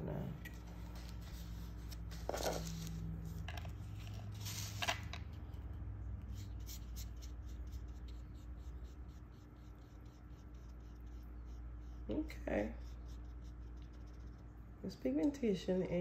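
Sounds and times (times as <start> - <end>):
brush scraping and clicking: 0.4 - 12.3, 13.0 - 14.5
brush on paper: 6.2 - 14.4.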